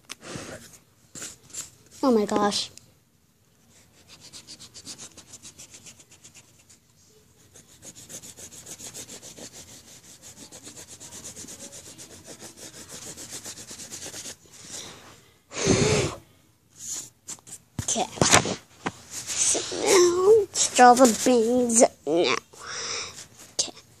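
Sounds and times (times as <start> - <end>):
rubbing on drawing paper: 3.7 - 6.8, 7.4 - 14.5, 16.8 - 18.1, 19.0 - 23.8.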